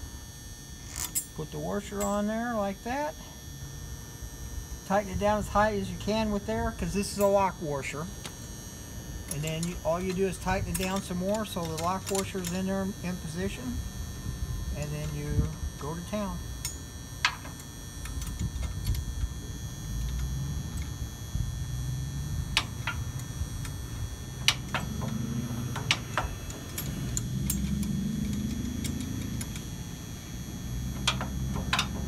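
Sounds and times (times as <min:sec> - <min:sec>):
steady low rumble: 0:12.4 - 0:31.8.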